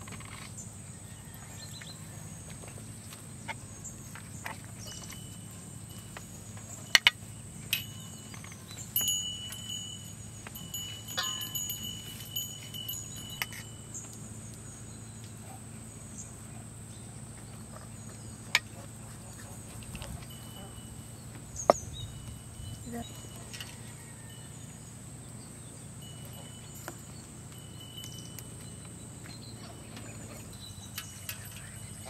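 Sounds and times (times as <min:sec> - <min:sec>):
metal clinks with ringing tone: 0:04.7 - 0:14.4, 0:19.8 - 0:32.0.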